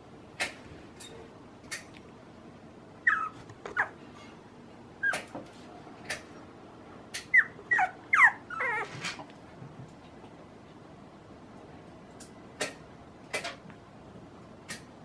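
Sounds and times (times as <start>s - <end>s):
puppy whimpering: 3.0s - 4.0s, 5.0s - 5.3s, 7.2s - 9.3s.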